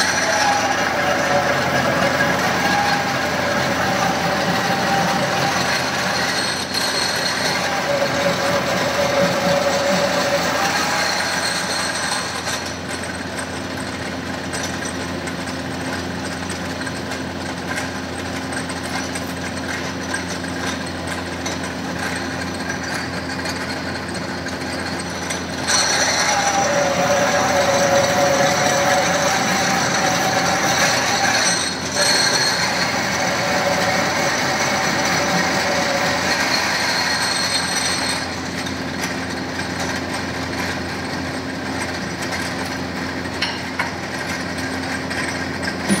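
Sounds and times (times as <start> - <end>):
pillar drill humming: 0.0 - 12.6, 21.5 - 39.2
drill bit whining into metal: 0.0 - 12.8, 21.4 - 40.7.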